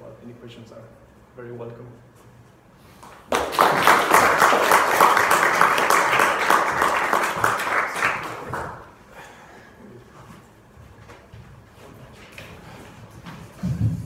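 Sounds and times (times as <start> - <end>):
audience applauding: 3.3 - 9.0.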